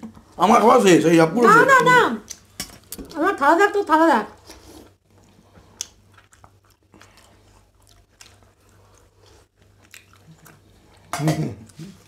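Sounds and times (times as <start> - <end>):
chewing: 4.4 - 12.0.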